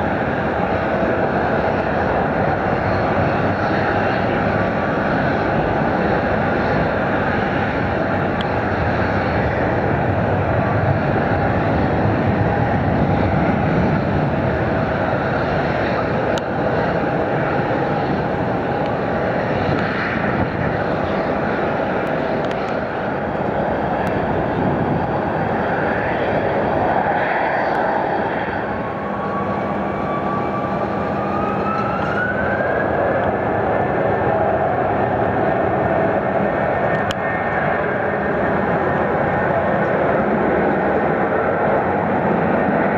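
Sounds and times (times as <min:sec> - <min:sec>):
jet engine whine rising: 0:00.0 - 0:42.9
jet engines roaring: 0:00.0 - 0:42.9.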